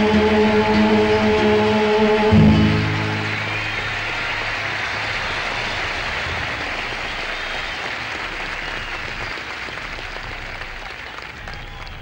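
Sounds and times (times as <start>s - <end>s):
crowd applauding: 2.4s - 12.0s.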